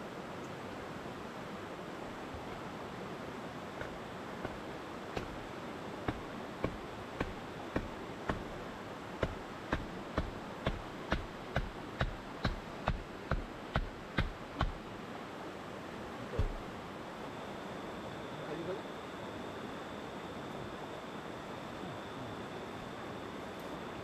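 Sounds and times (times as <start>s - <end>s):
steady rushing background: 1.3s - 19.4s
dull blows on bamboo post: 3.8s - 8.6s, 9.2s - 14.8s.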